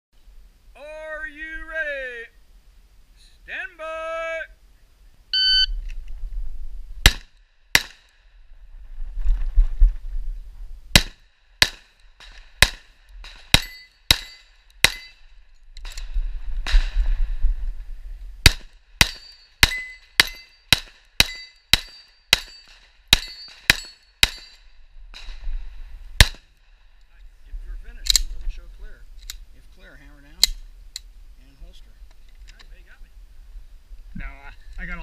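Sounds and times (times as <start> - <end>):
low wind-like rumble: 4.8 - 20.2, 24.5 - 35.0
pistol shots: 7.0 - 8.1, 10.9 - 15.1, 18.4 - 24.6, 26.2 - 26.5.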